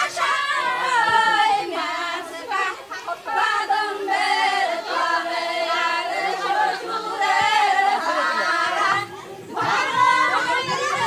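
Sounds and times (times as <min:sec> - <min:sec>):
women singing in chorus: 0:00.0 - 0:11.0.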